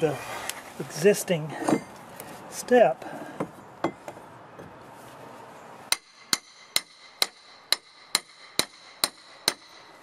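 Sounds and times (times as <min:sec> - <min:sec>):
hammer striking steel pry bar: 0:05.9 - 0:09.9.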